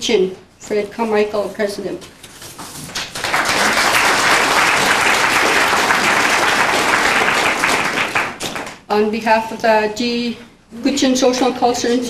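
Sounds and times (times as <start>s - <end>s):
audience applauding: 3.0s - 8.8s.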